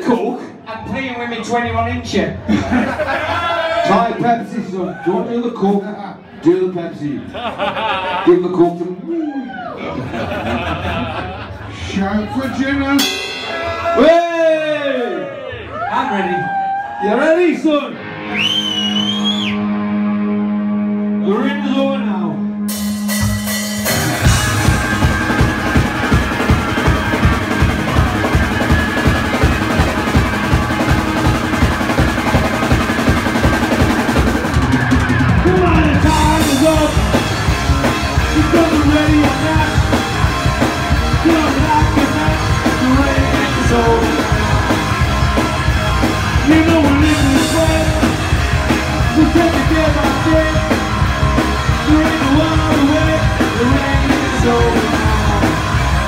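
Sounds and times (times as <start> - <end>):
rock and roll band playing: 0.0 - 4.8, 9.9 - 56.0
man singing: 35.4 - 37.2, 38.2 - 40.0, 41.1 - 44.6, 46.4 - 48.3, 49.0 - 50.9, 51.7 - 55.8.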